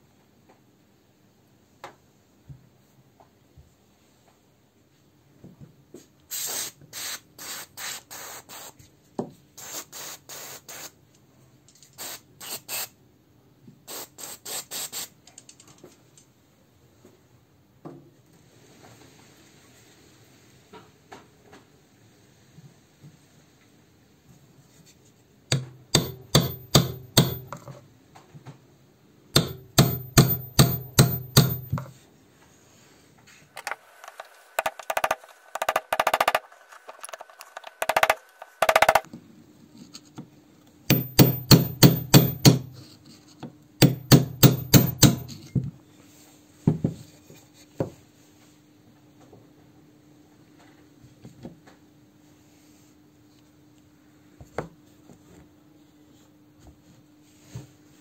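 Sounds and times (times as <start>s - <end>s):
hammer striking steel punch: 25.5s - 27.6s, 29.4s - 31.9s, 40.9s - 42.8s, 43.8s - 45.4s.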